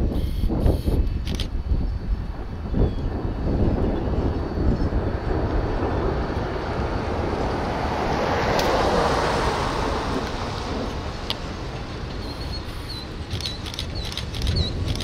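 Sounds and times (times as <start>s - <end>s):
low wind rumble on microphone: 0.0s - 15.0s
pickup truck driving past: 4.9s - 13.3s.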